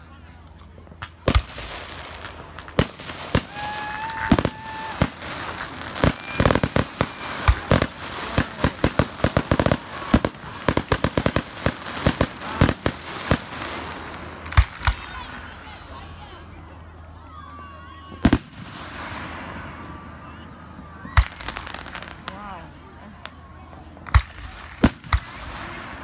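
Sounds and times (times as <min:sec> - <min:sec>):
fireworks crackling pops: 0:00.4 - 0:15.9, 0:18.0 - 0:20.0, 0:20.8 - 0:22.5, 0:23.2 - 0:26.0
fireworks bangs: 0:00.8 - 0:15.8, 0:18.1 - 0:22.6, 0:24.0 - 0:26.0
firework whistling: 0:01.3 - 0:15.3.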